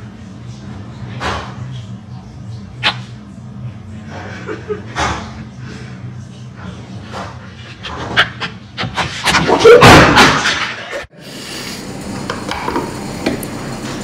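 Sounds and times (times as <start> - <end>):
steady low hum: 0.0 - 9.3.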